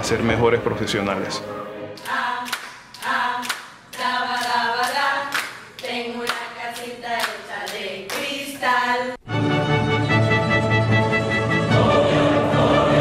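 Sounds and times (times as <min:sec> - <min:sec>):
hands clapping in rhythm: 0:02.0 - 0:08.7
women singing together: 0:02.0 - 0:09.2, 0:11.7 - 0:13.0.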